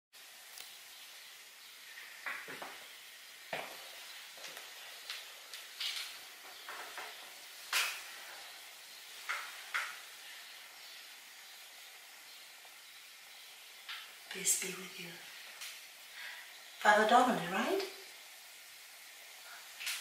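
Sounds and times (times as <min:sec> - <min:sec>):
steady background hiss: 0:00.2 - 0:20.0.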